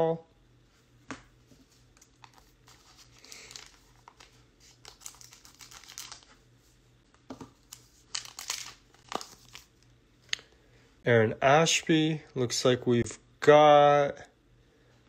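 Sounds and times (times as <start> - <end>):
foil wrapper crinkling: 2.0 - 6.4, 7.6 - 9.8.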